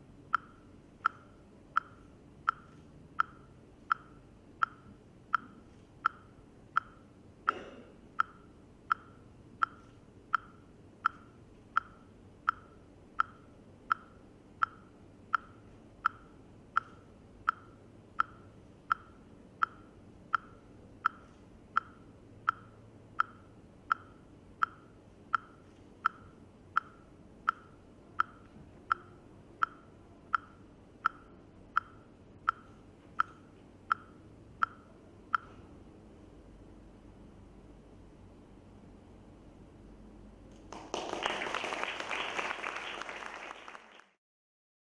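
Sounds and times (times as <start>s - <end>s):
metronome-like ticking: 0.2s - 35.6s.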